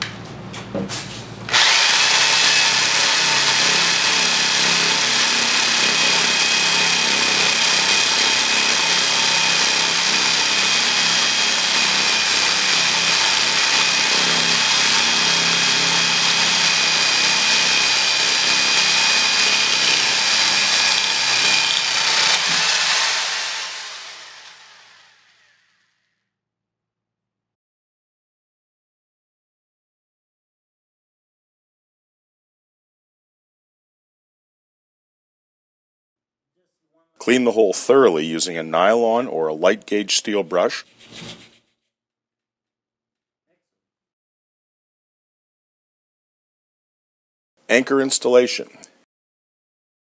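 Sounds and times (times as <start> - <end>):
hammer drill boring into concrete: 1.5 - 26.1.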